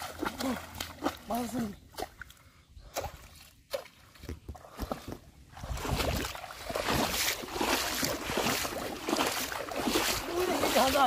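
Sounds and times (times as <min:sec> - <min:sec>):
wading through shallow water: 0:00.0 - 0:11.0
water splashes and drips: 0:00.0 - 0:11.0.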